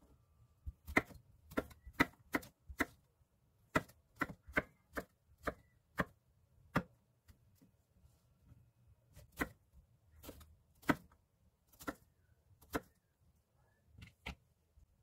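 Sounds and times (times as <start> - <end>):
knife chopping on wooden board: 0.8 - 3.0, 3.7 - 7.0.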